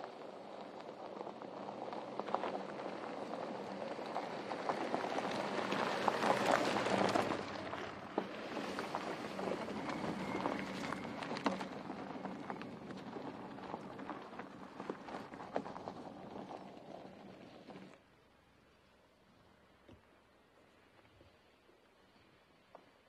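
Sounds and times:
tyres crunching over gravel: 0.0 - 18.0
engine humming at low revs: 0.1 - 20.8.

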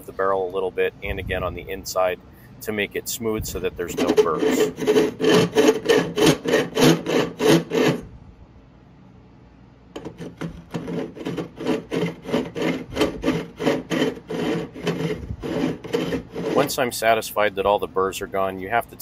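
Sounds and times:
deburring tool rasping on steel: 3.8 - 8.0, 10.0 - 17.2.

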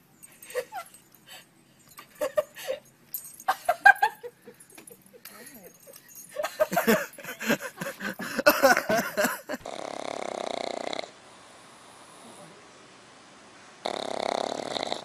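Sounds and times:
dog snoring: 9.6 - 12.6, 13.8 - 15.0.

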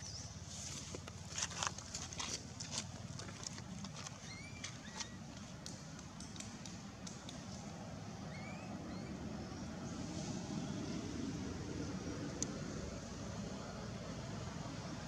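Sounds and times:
low outdoor rumble: 0.0 - 15.0
short rising chirp: 8.3 - 9.2.

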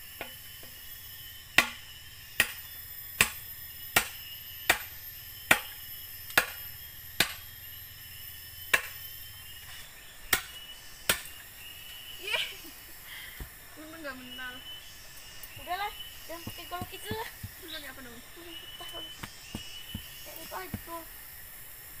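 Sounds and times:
insects droning: 0.0 - 22.0
blade chopping bamboo: 1.6 - 1.8, 2.4 - 3.4, 4.0 - 6.6, 7.2 - 7.4, 8.7 - 9.0, 10.3 - 11.3.

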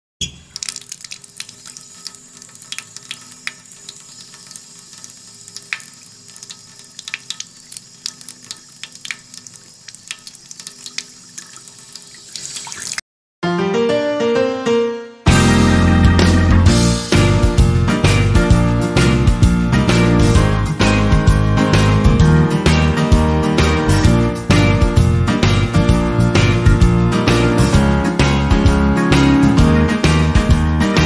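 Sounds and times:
tap water splashing into sink: 0.2 - 13.0
music with stepping notes: 15.3 - 31.0.

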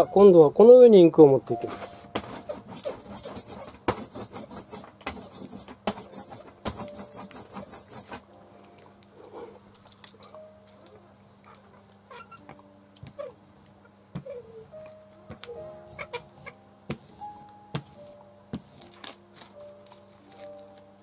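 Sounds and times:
ink roller rubbing hiss: 2.0 - 8.3, 15.5 - 18.8.

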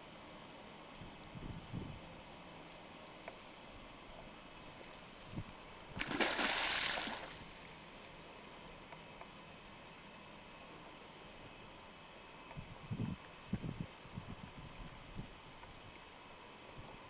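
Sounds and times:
beaver splashing in water: 5.9 - 7.7.

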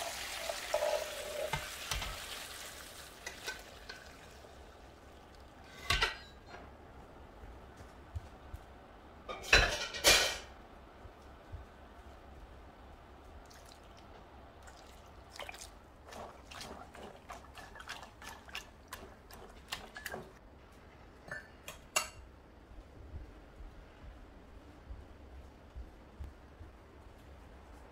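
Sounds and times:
metal pot clanking: 0.0 - 2.2
liquid dripping: 13.4 - 19.1.

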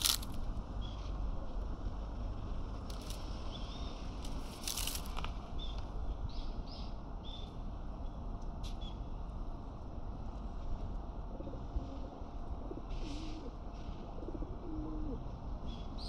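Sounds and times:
brief rustle: 0.0 - 0.4, 4.2 - 5.4
steady low rumble: 0.0 - 12.8.

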